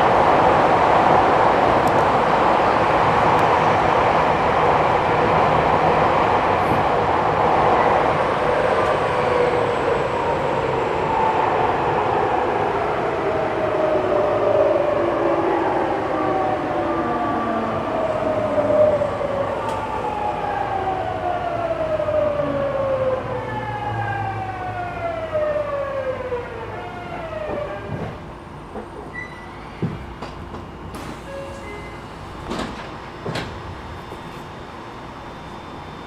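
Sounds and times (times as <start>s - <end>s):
electric train inverter whine: 0.0s - 36.0s
train running noise: 27.2s - 36.0s.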